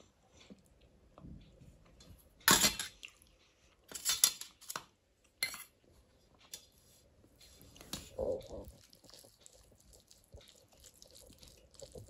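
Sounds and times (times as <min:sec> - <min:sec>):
steel bowl and spoon clattering: 0:02.5 - 0:03.0.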